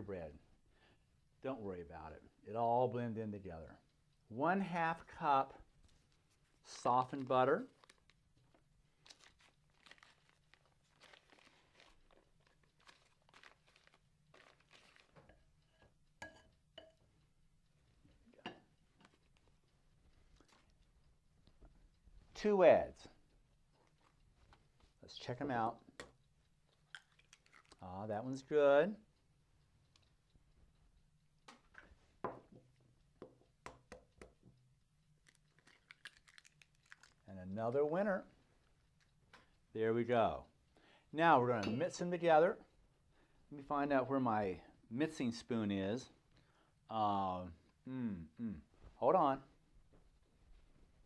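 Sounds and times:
eggshell crackling clicks: 25.7 - 27.8, 32.6 - 37.3
egg shell tapping: 25.8 - 27.8, 31.4 - 37.2.

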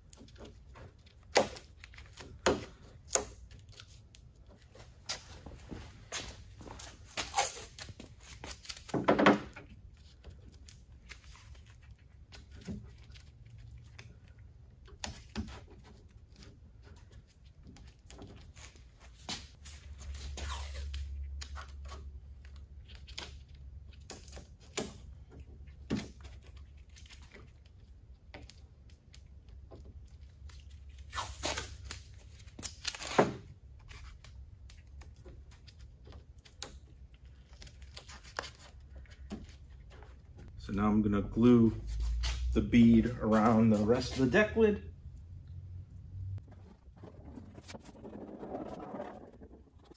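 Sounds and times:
tape rustling: 0.0 - 40.6
tape ripping: 6.8 - 9.0, 17.7 - 22.1, 30.4 - 40.0.

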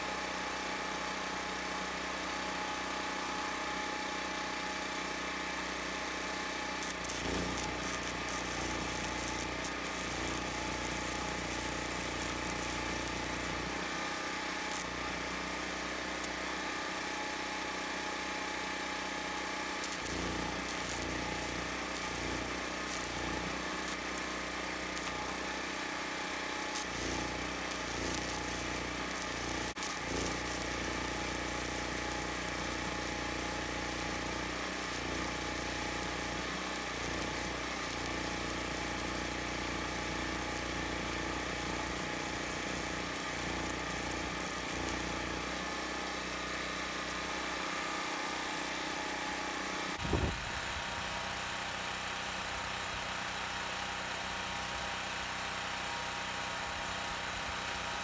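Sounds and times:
welding arc crackling: 6.0 - 48.6.

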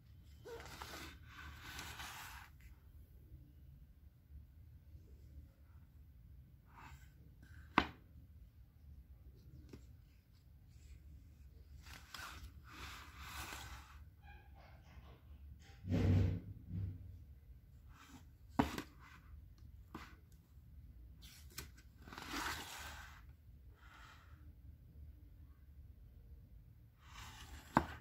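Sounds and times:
paper pages rustling: 0.4 - 2.7
book dull thump: 7.6 - 8.0, 18.6 - 19.0.

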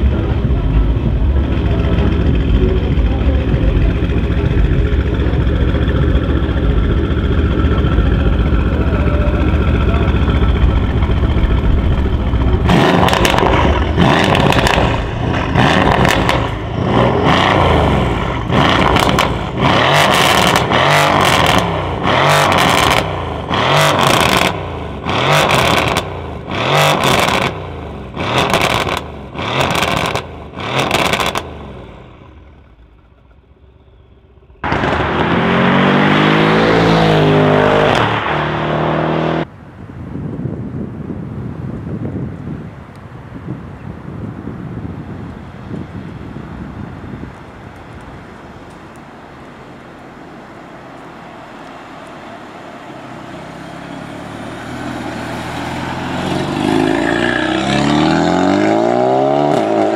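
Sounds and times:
car engine idling and revving: 0.0 - 39.9, 44.1 - 59.9
car driving past: 49.5 - 59.9.

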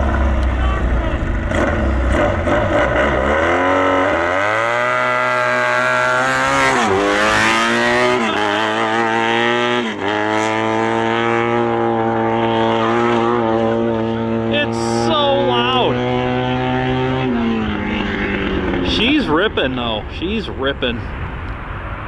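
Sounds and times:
tractor engine revving: 0.0 - 21.1.

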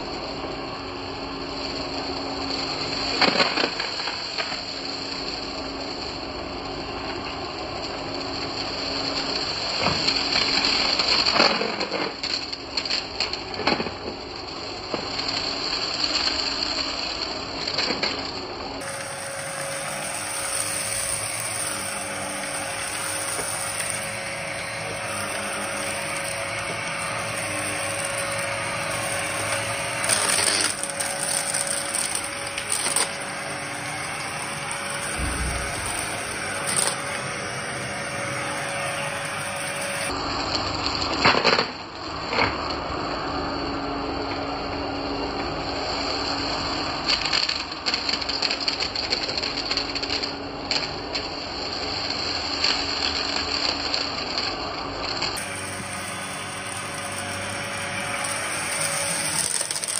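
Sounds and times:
vacuum cleaner running over carpet: 0.0 - 59.9
debris crunching and rattling: 18.8 - 39.6.

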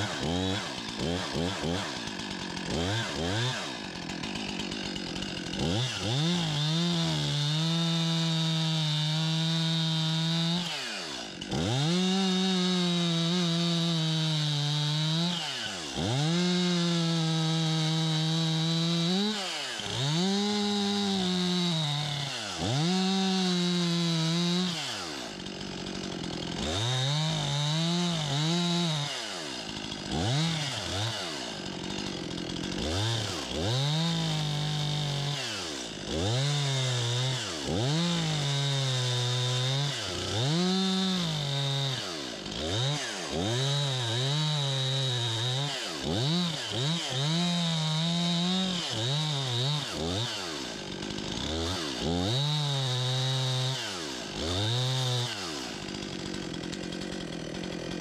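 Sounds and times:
chainsaw revving: 0.0 - 58.0.

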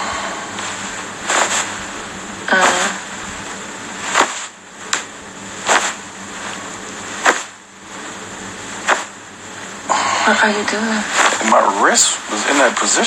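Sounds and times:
faint steady hiss: 0.0 - 13.0
puffs on microphone: 0.1 - 1.8, 5.6 - 6.0.

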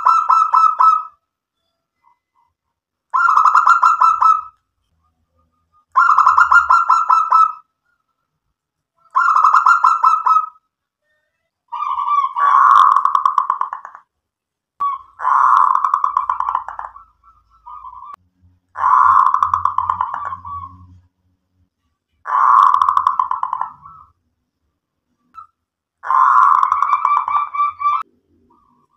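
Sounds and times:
dove cooing: 6.0 - 7.6, 11.7 - 14.0, 14.8 - 18.2, 18.8 - 20.9, 22.3 - 24.1, 26.0 - 28.9.

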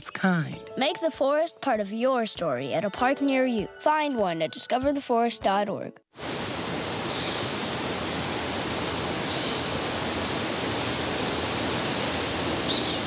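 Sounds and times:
rushing hiss: 6.2 - 13.0
faint high bird chirps: 12.7 - 13.0.

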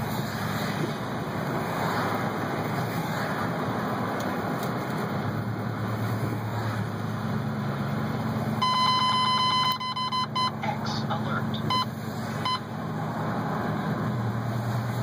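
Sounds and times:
low engine hum: 0.0 - 15.0
road noise inside car: 0.0 - 15.0
loud electronic beep: 8.6 - 12.6.

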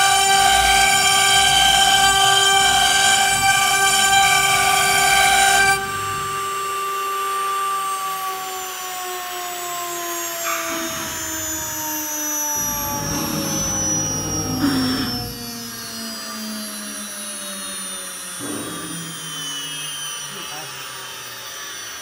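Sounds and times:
router spindle whining: 0.0 - 22.0
router bit rasping cut: 10.4 - 16.2.

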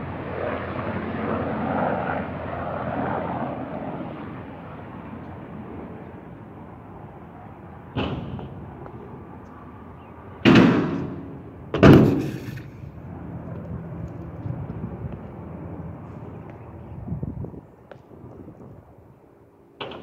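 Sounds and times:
scooter hitting a ramp: 8.0 - 8.5, 11.8 - 12.7.

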